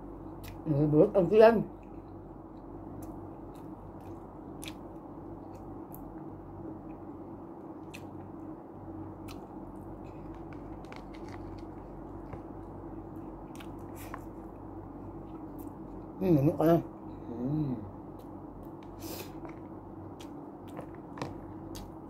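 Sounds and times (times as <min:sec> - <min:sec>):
steady low hum: 0:00.0 - 0:22.0
person chewing food: 0:01.8 - 0:06.1, 0:07.7 - 0:08.5, 0:09.2 - 0:16.1, 0:18.1 - 0:22.0.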